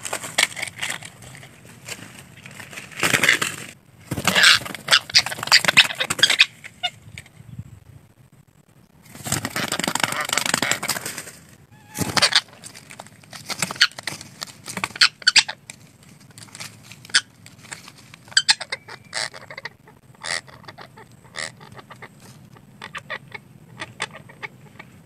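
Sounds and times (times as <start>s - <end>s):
parakeets squawking: 4.1s - 7.0s, 11.7s - 12.7s, 14.8s - 15.6s, 17.0s - 17.4s, 18.2s - 25.0s.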